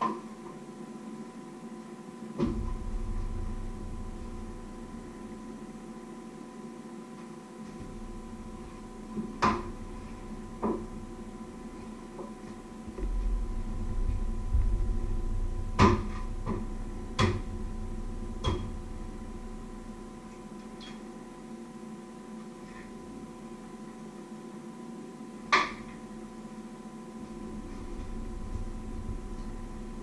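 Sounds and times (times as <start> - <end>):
electrical hum: 0.0 - 30.0
low rumble: 2.4 - 6.1, 7.8 - 20.6, 27.2 - 30.0.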